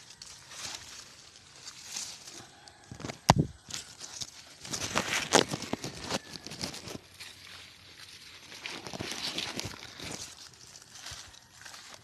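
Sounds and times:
grass and leafy plants rustling: 0.0 - 12.0.

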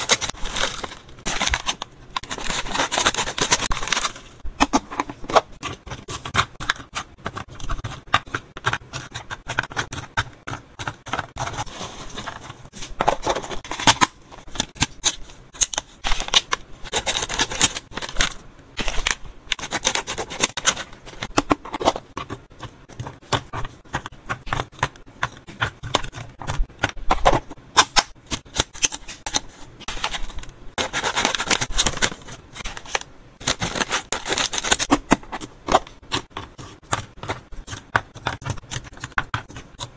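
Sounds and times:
scissors cutting foil pouches: 0.0 - 4.2, 13.3 - 21.9, 27.8 - 35.2
pouches crinkling: 0.0 - 6.2, 28.4 - 37.4.

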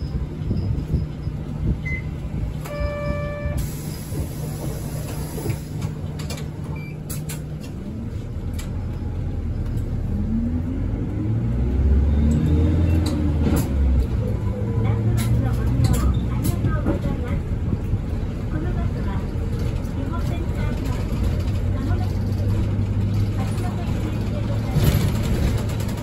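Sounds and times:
bus engine running: 0.0 - 26.0
short electronic beep: 2.7 - 3.6.

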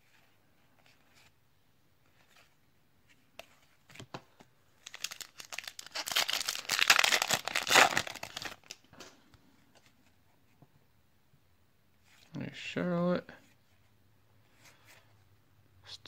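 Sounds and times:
plastic wrapper tearing and crinkling: 4.8 - 8.9.

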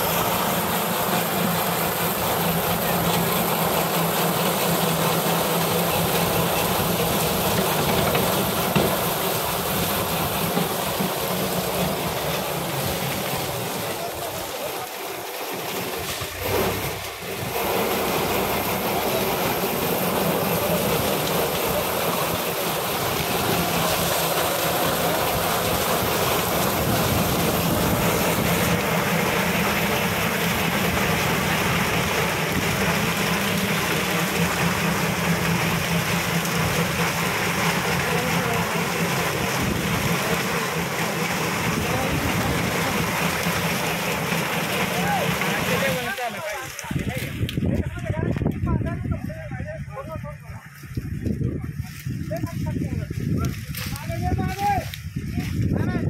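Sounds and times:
tractor engine running: 0.0 - 56.0
harvester cutting cane: 15.5 - 48.4, 50.7 - 55.8.

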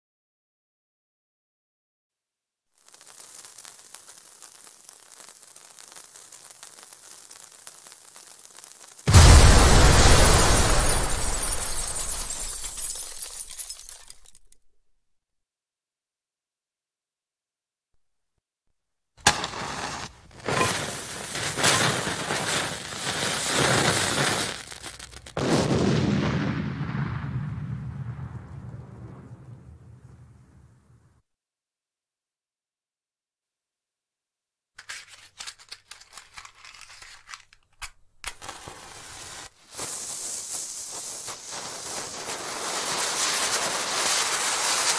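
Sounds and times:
fuse burning with sizzling hiss: 2.7 - 13.4, 19.2 - 25.4, 38.2 - 44.9
explosions with rumbling: 9.1 - 12.8, 25.0 - 31.0.

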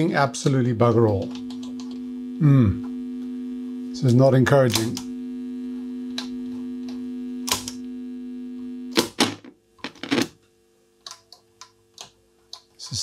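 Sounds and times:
radio loudspeaker hum: 0.0 - 10.2.

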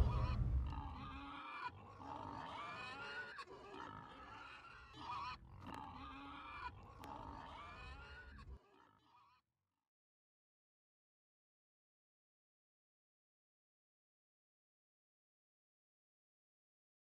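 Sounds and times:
pig grunting and squealing: 0.0 - 9.2.

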